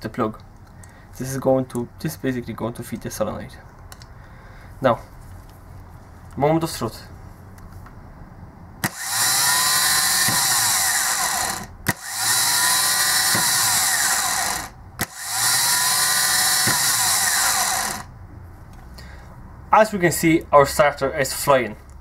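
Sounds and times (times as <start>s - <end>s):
starter motor whirring whine: 8.8s - 18.1s.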